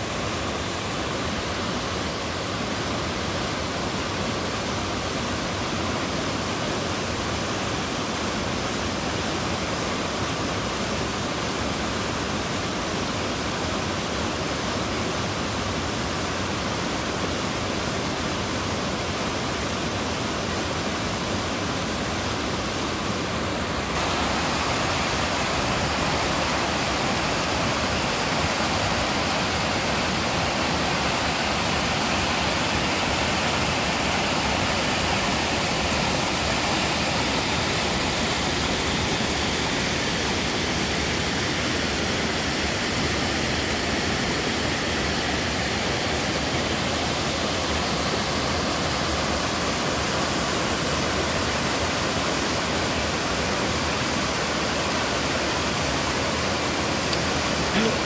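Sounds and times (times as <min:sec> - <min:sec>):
waterfall pouring: 0:23.9 - 0:58.0.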